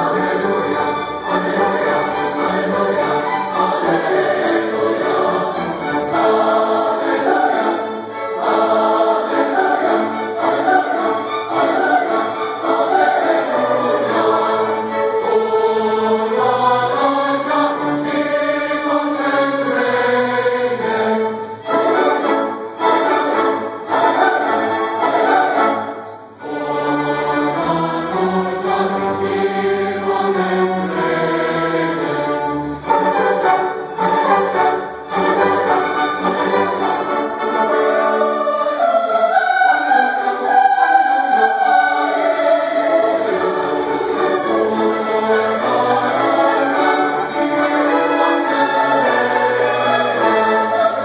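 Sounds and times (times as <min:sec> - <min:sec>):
choir singing: 0:00.0 - 0:51.0
string orchestra: 0:00.0 - 0:51.0.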